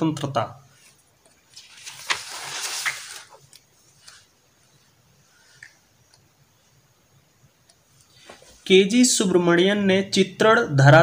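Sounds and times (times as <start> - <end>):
notebook page turning: 0.8 - 4.3.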